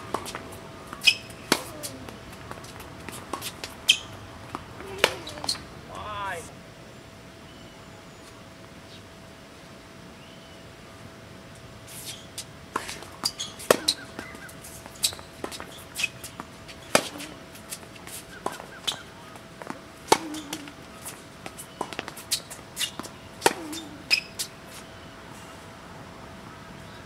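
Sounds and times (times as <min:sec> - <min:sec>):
faint steady hum: 0:00.0 - 0:27.0
racket striking tennis ball: 0:00.1 - 0:05.7, 0:12.8 - 0:19.0, 0:19.6 - 0:24.5
tennis ball bouncing: 0:00.1 - 0:05.7, 0:12.8 - 0:24.5.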